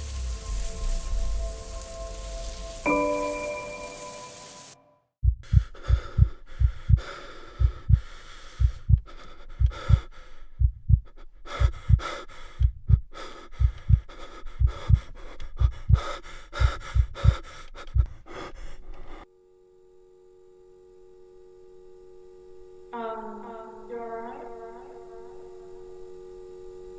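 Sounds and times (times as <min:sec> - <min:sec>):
fast pounding heartbeat: 0:05.2 - 0:18.4
heavy panting breaths: 0:05.4 - 0:19.2.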